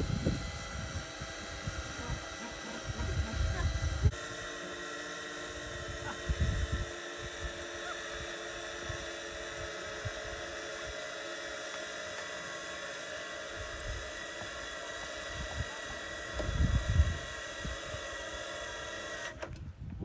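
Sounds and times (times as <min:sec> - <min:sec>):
wind buffeting microphone: 0:00.0 - 0:04.2, 0:05.6 - 0:07.6, 0:16.3 - 0:18.4, 0:19.5 - 0:20.0
steady mechanical hum: 0:00.0 - 0:20.0.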